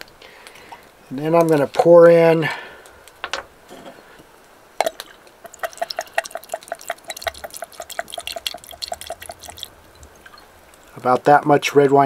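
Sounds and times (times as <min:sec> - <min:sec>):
liquid glugging from a bottle: 0:04.8 - 0:11.0.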